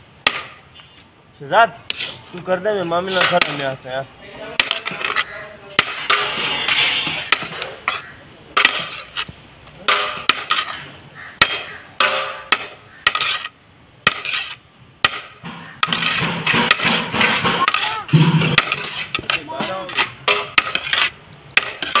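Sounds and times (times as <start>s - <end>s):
spoon scraping metal pot: 4.6s - 9.3s, 15.8s - 22.0s.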